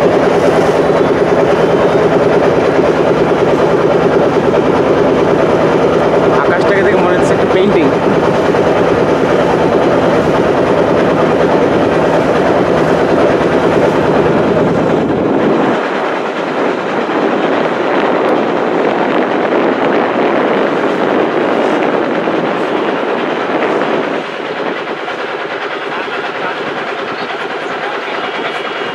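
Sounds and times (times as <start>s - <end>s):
boat engine chugging: 0.0s - 28.9s
rushing wind and water: 0.0s - 28.9s.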